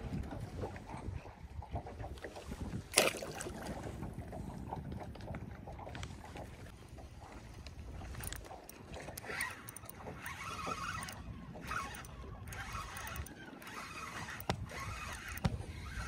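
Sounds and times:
low wind rumble: 0:00.0 - 0:16.0
water lapping against boat hull: 0:00.0 - 0:16.0
fishing reel clicking: 0:07.9 - 0:16.0.

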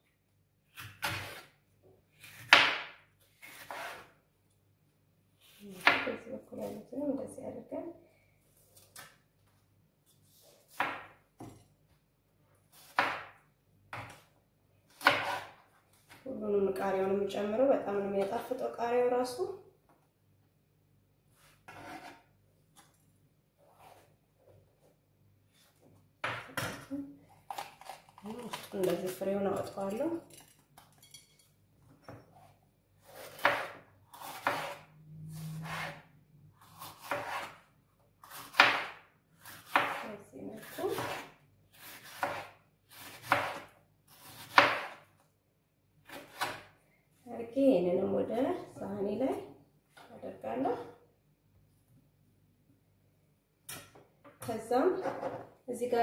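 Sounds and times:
knife slicing pepper on cutting board: 0:14.9 - 0:15.6, 0:21.4 - 0:22.2, 0:33.0 - 0:34.9, 0:35.6 - 0:36.0, 0:36.6 - 0:37.6, 0:38.2 - 0:40.0, 0:40.6 - 0:45.0.

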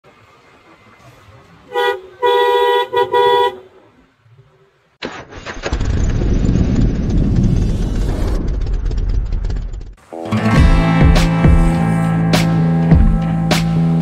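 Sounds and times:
motorcycle horn honking: 0:01.7 - 0:03.7
loud music: 0:10.1 - 0:14.0.

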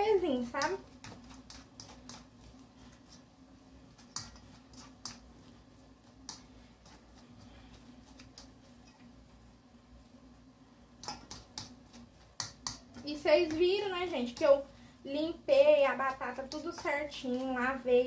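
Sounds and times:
faint steady hum: 0:00.0 - 0:18.0
soft squishing of mashed potatoes: 0:00.0 - 0:18.0
fork clicking against metal bowl: 0:11.0 - 0:11.7.

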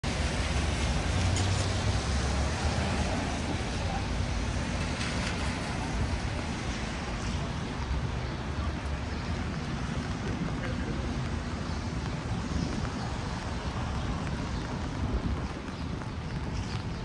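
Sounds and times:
cars passing on wet road: 0:00.0 - 0:17.0.

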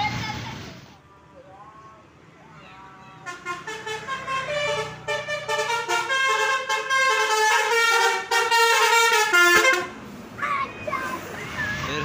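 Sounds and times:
bus engine hum: 0:00.0 - 0:12.0
multi-tone air horn melody: 0:03.2 - 0:09.9.

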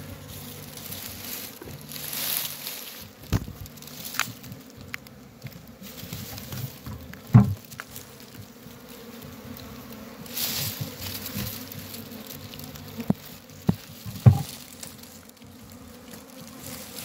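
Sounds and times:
bees buzzing: 0:00.0 - 0:17.0
sharp thump: 0:07.3 - 0:07.6.

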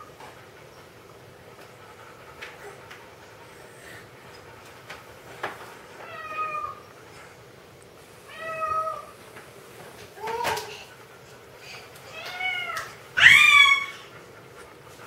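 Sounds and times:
toddler high vocal calls: 0:12.2 - 0:14.1.

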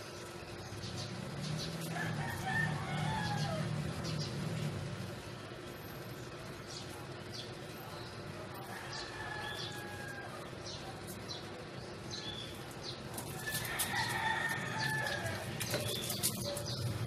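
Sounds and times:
rooster crowing: 0:01.8 - 0:03.9, 0:08.6 - 0:10.5, 0:13.4 - 0:15.8.

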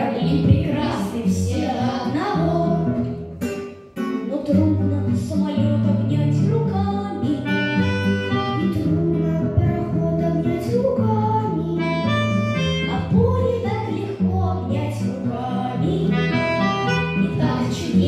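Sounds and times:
children singing in unison: 0:00.0 - 0:02.9
strummed acoustic guitar: 0:00.0 - 0:18.0.

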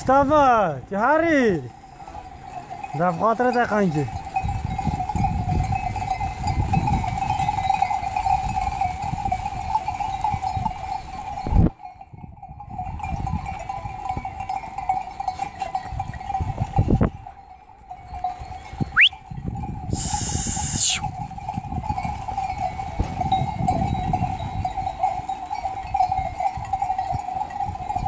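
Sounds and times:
flock of sheep moving past: 0:01.6 - 0:11.8, 0:13.0 - 0:28.0
short rising whistle: 0:19.0 - 0:19.2, 0:20.0 - 0:21.0.

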